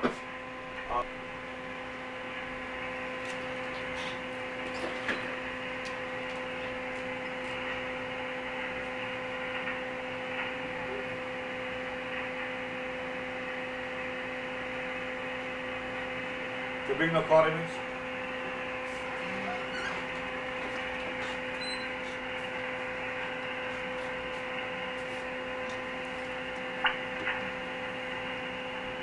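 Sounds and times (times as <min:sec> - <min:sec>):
constant hum: 0:00.0 - 0:29.0
radio static hiss: 0:00.8 - 0:01.2.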